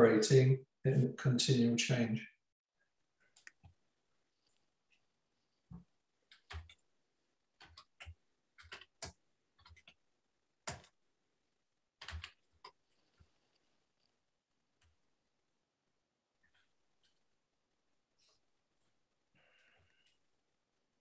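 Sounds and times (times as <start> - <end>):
faint keyboard typing: 3.2 - 11.0, 12.0 - 15.0, 16.4 - 17.4, 18.2 - 20.3.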